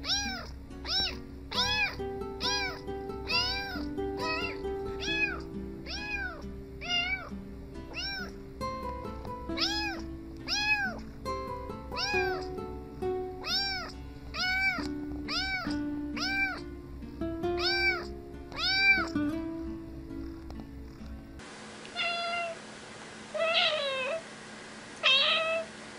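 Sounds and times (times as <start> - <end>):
kitten meowing: 0.0 - 7.3, 7.9 - 8.4, 9.6 - 11.0, 11.9 - 12.6, 13.4 - 16.7, 17.6 - 19.2, 21.9 - 22.6, 23.4 - 24.2, 25.0 - 25.7
background music: 0.0 - 21.4.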